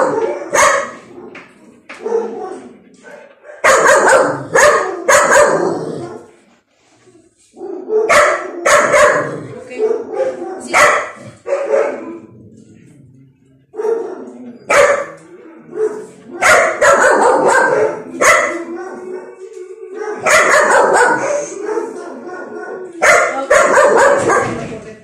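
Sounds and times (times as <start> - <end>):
dog barking: 0.0 - 6.3, 7.6 - 12.3, 13.7 - 19.4, 20.0 - 24.7
dog howling: 14.0 - 23.0.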